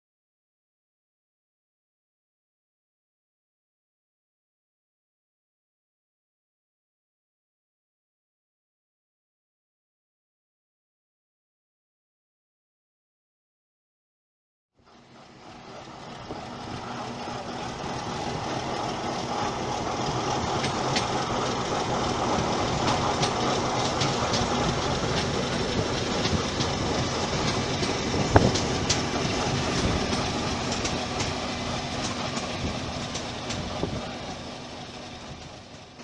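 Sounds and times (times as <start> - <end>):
electric train passing: 14.8 - 36.0
wheels clicking on rails: 14.8 - 36.0.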